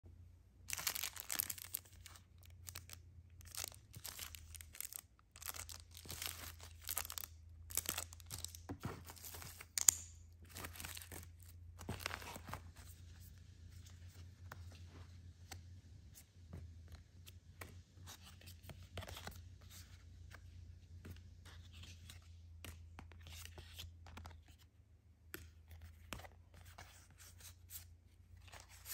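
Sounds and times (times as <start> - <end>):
plastic packaging rustling: 0.7 - 13.0.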